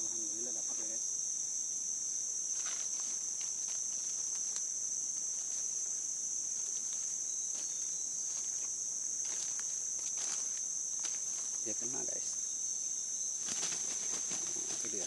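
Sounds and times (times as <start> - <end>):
insect chorus drone: 0.0 - 15.0
footsteps in leaf litter: 6.5 - 11.7.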